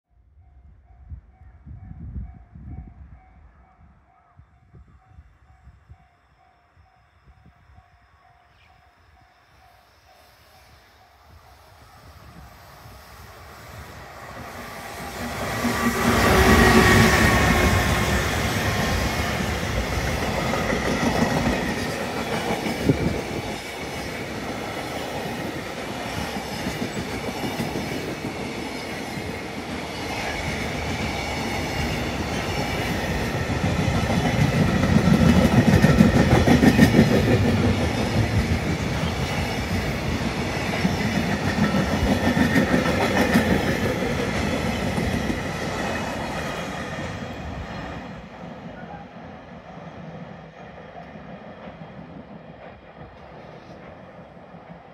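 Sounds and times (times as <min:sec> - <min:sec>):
train wheels clattering on rails: 0:14.8 - 0:47.3, 0:50.2 - 0:54.9.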